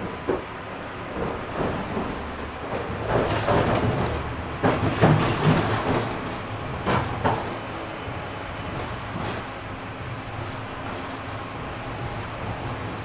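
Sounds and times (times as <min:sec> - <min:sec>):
tram running rumble: 0:00.0 - 0:13.0
wheels knocking on track: 0:01.1 - 0:07.8.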